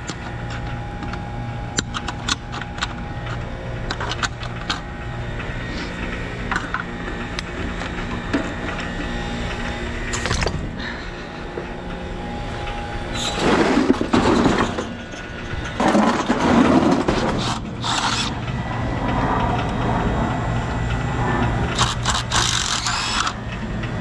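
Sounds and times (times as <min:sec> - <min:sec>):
cordless driver backing out screws: 0:17.3 - 0:18.3, 0:21.8 - 0:23.4.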